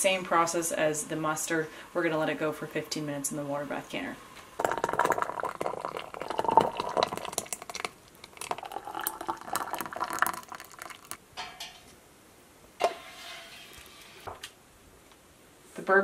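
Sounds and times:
liquid dripping and pouring: 4.6 - 11.2.

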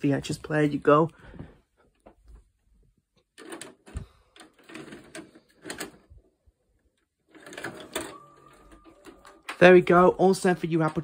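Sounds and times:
tape mechanism clicks and clunks: 3.3 - 6.3, 6.9 - 11.0.

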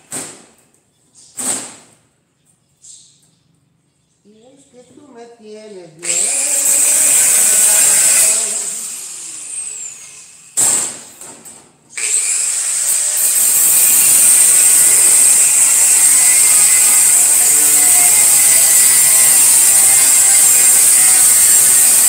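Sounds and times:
angle grinder cutting sheet steel: 6.0 - 10.8, 11.9 - 22.0.

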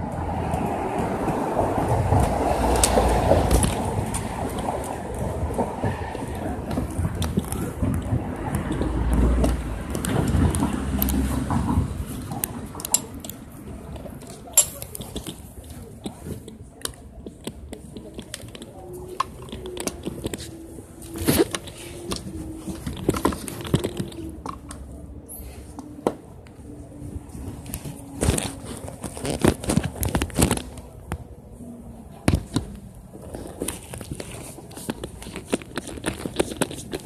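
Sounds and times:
camera handling clicks and rubs: 33.2 - 37.0.

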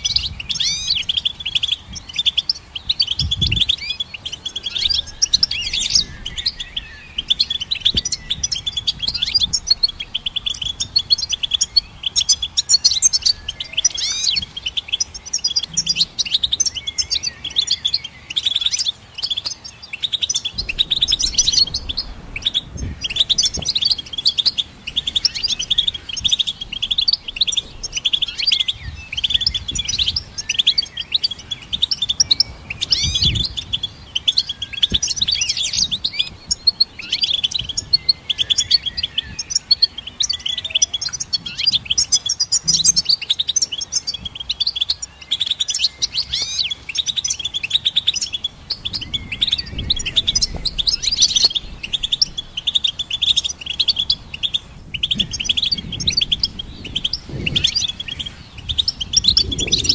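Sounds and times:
goldfinch twittering song: 0.0 - 59.9.

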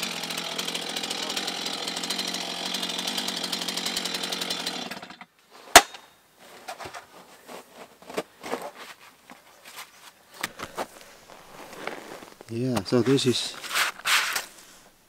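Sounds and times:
chainsaw cutting log: 0.0 - 6.0.

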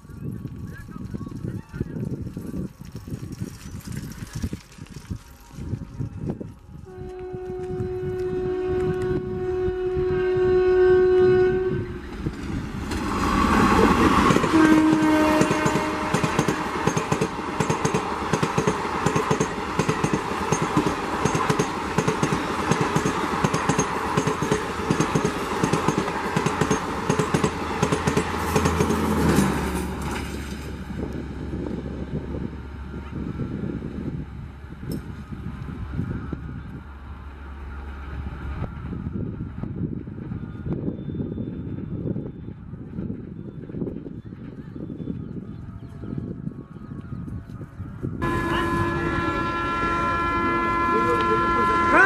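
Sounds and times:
train rushing past: 5.5 - 45.4, 48.0 - 52.0
locomotive air horn blast: 6.8 - 12.2, 13.4 - 16.9, 48.2 - 52.0
wheel clatter over rail joints: 15.4 - 30.8.

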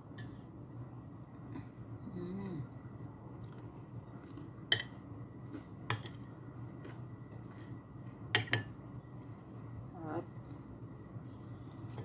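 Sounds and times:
cutlery clinking on a plate: 8.4 - 8.7.

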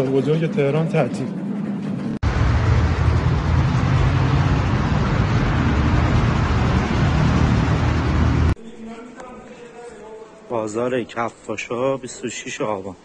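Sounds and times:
rumbling street noise: 1.3 - 8.6.

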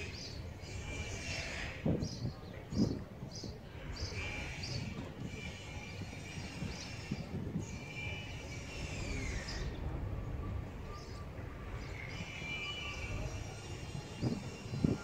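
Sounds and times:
low outdoor rumble: 7.6 - 15.0.

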